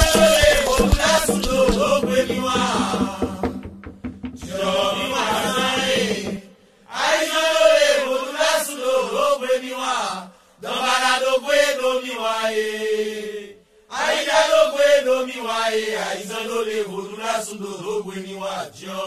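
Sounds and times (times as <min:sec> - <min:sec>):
person chanting: 0:00.0 - 0:03.6, 0:04.5 - 0:13.4.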